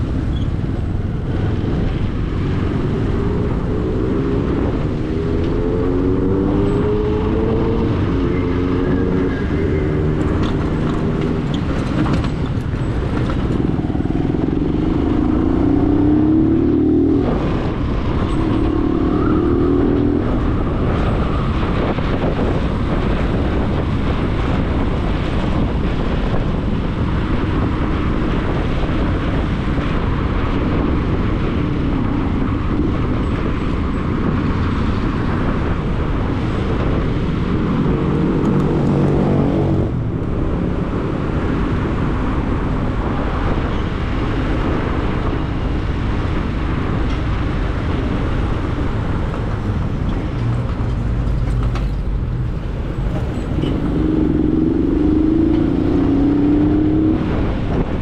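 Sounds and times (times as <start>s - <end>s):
road noise: 0.0s - 58.0s
vehicle engine pulling away: 1.3s - 21.8s, 44.7s - 58.0s.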